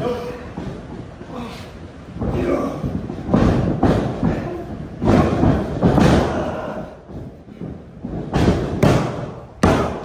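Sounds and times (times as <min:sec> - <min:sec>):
bodies thudding on ring mat: 0:02.2 - 0:10.0.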